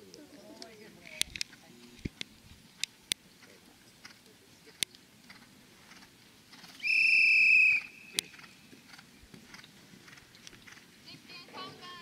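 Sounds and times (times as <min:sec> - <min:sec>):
whistle blown: 0:06.8 - 0:08.2.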